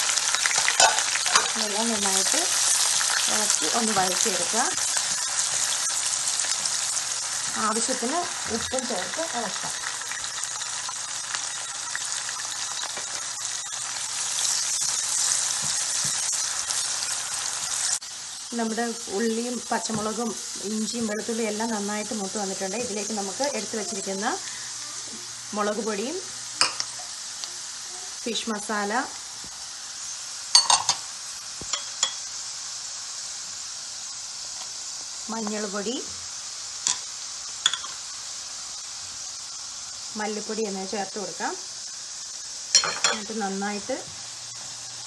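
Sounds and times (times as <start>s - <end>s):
food sizzling in oil: 0.0s - 45.0s
ceramic plate clinking on pan: 30.6s - 31.0s, 42.8s - 43.2s.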